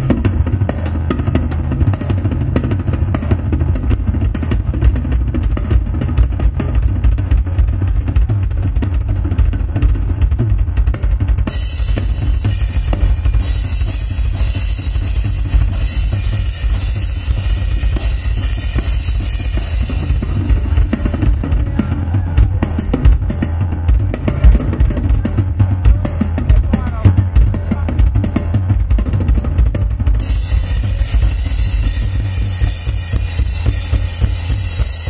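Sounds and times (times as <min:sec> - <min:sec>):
rapid bass drum strokes: 0:00.0 - 0:35.0
rock drum kit solo: 0:00.0 - 0:35.0
cymbal crashing: 0:30.2 - 0:35.0.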